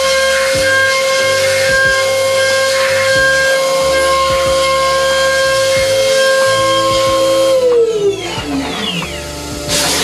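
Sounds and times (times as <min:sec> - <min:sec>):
milling spindle whining: 0:00.0 - 0:10.0.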